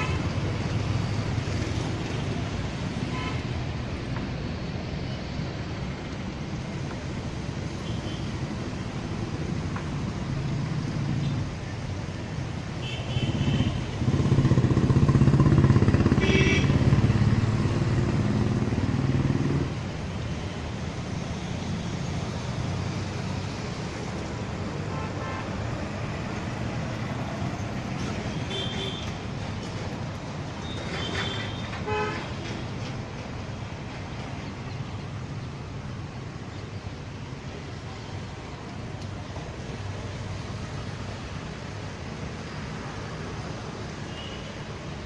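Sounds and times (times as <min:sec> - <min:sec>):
traffic rushing: 0:00.0 - 0:45.0
vehicle horn toot: 0:16.2 - 0:16.7, 0:31.0 - 0:32.3.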